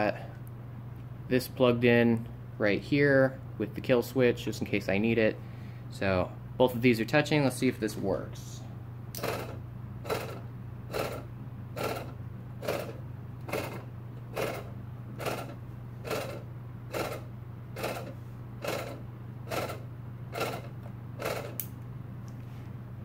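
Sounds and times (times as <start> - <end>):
steady low hum: 0.0 - 23.0
air compressor chugging in pulses: 9.2 - 21.7.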